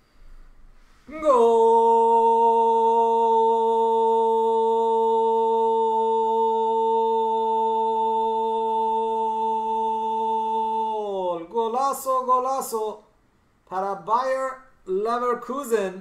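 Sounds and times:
man holding long note: 0:01.1 - 0:11.3.

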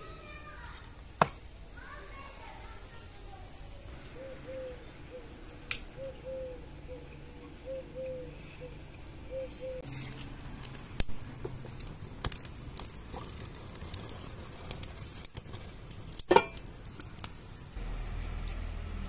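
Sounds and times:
wood fire crackling and popping: 0:04.9 - 0:06.0, 0:09.8 - 0:19.0.

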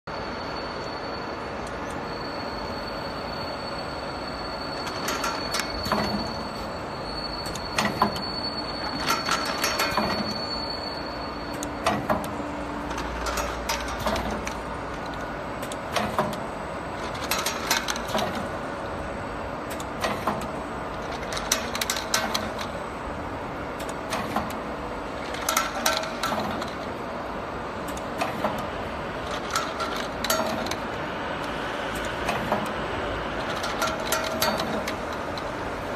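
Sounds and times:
thin high whine: 0:00.1 - 0:11.8
machine mechanical hum: 0:00.1 - 0:35.9
machine clacking and clicking: 0:04.8 - 0:06.7, 0:07.4 - 0:10.5, 0:11.5 - 0:23.0, 0:23.8 - 0:35.9.

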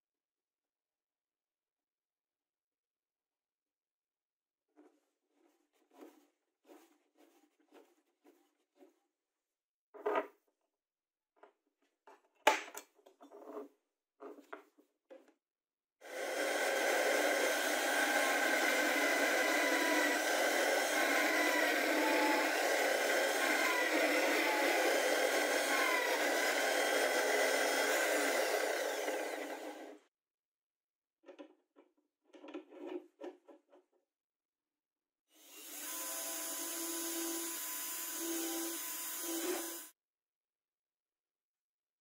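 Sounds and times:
drill press motor whine: 0:16.1 - 0:30.0.

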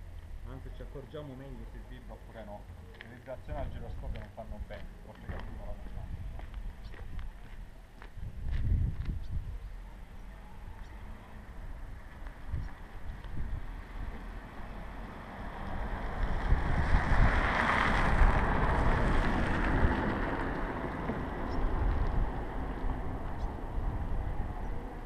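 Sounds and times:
wind on microphone: 0:03.5 - 0:14.4, 0:15.7 - 0:25.0
car passing: 0:10.0 - 0:25.0.

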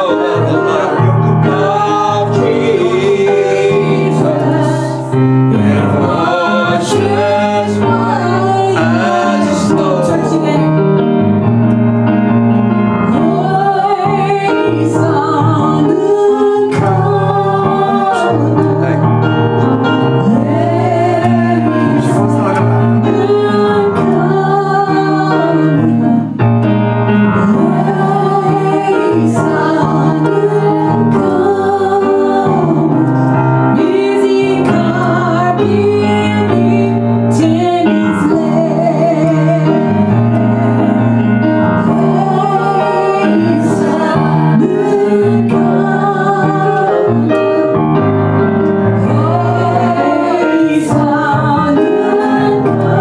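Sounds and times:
keyboard accompaniment: 0:00.0 - 0:53.0
woman singing: 0:13.1 - 0:19.1, 0:27.4 - 0:40.0.

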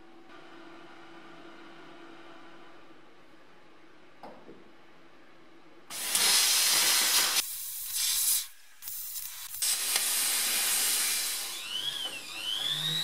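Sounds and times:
plasma cutter hissing: 0:05.9 - 0:11.8
rotary tool whining: 0:09.4 - 0:13.0.

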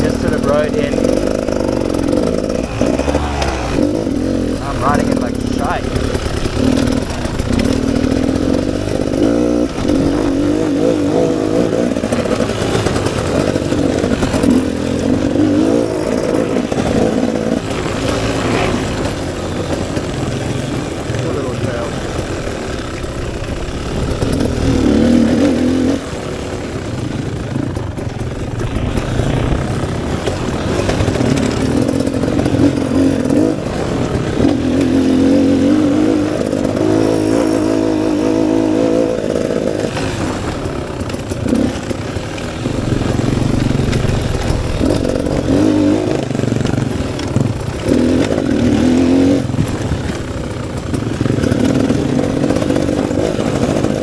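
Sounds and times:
two-stroke motorcycle engine revving: 0:00.0 - 0:54.0.

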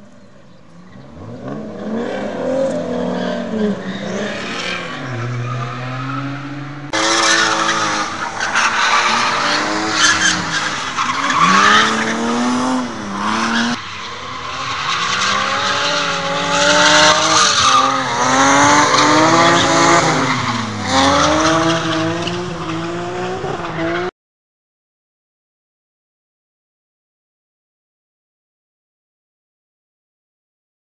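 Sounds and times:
car engines revving hard: 0:00.7 - 0:24.1.

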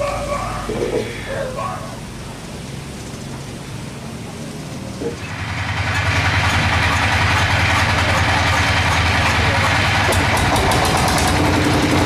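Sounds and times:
engine running: 0:00.0 - 0:12.0.

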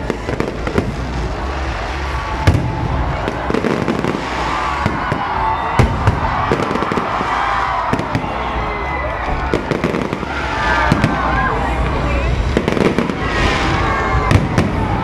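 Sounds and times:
fireworks bursting and crackling: 0:00.0 - 0:15.0
sharp firework bangs: 0:02.1 - 0:08.3, 0:09.5 - 0:11.4, 0:12.4 - 0:15.0.

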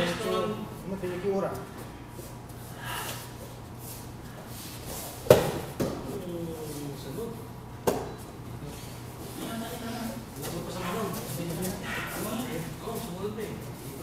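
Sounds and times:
body thudding on foam mat: 0:05.1 - 0:06.0.

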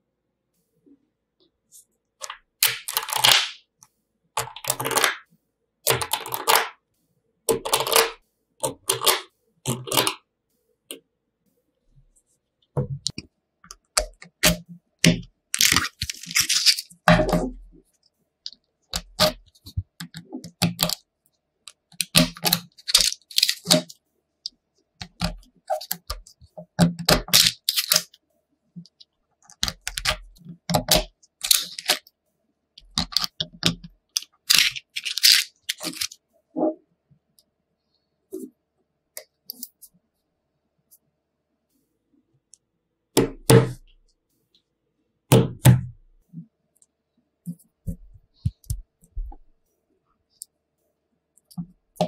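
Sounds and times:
cards scraping: 0:15.6 - 0:17.1, 0:22.0 - 0:23.9, 0:30.8 - 0:32.0, 0:33.0 - 0:36.2
magnet balls clicking: 0:28.8 - 0:32.1, 0:32.8 - 0:36.2.

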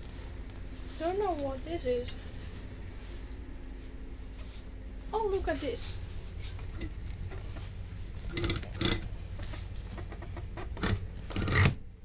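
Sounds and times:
hand scraping plastic seat: 0:06.6 - 0:11.8.

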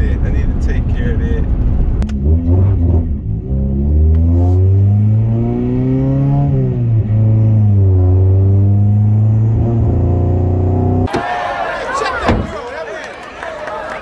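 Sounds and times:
car engine accelerating: 0:00.0 - 0:11.1.

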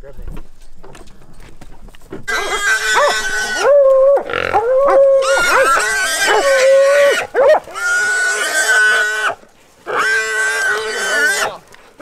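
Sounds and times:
hog squealing: 0:02.3 - 0:11.6.

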